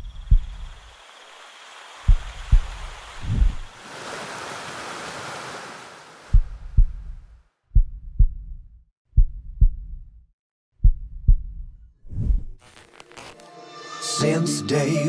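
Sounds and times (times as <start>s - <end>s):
heartbeat thumps: 0.0s - 0.8s, 2.1s - 3.7s, 6.3s - 10.2s, 10.8s - 12.6s.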